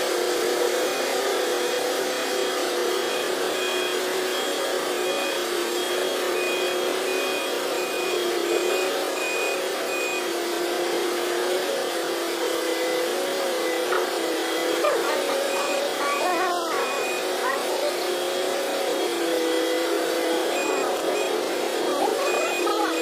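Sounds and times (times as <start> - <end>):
faint high beeping: 14.6 - 17.6, 20.4 - 23.0.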